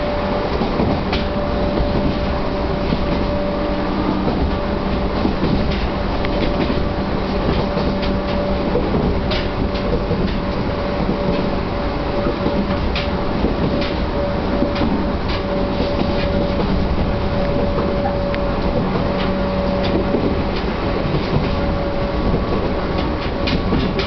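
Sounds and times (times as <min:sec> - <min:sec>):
train rumble with whine: 0:00.0 - 0:24.0
wheels clacking over rail joints: 0:00.0 - 0:24.0.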